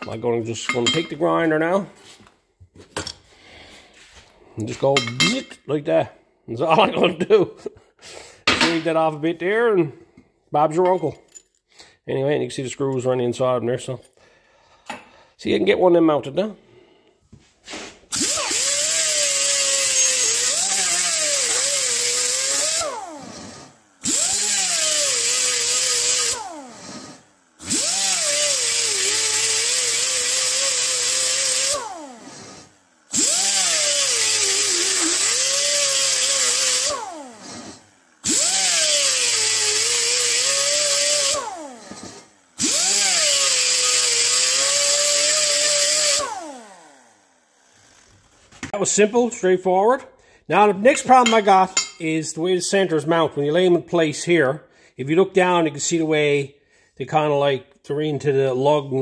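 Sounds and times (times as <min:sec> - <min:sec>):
air die grinder whining on metal: 0:18.1 - 0:48.8.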